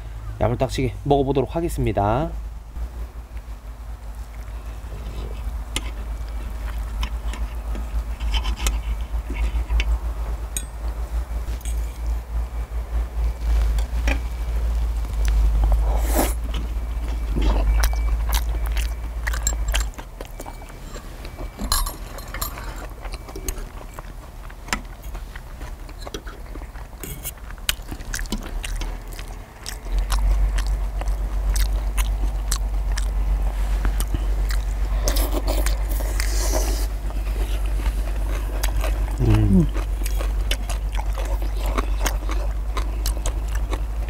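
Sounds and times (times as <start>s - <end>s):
chewing: 4.2s - 10.0s, 15.0s - 44.0s.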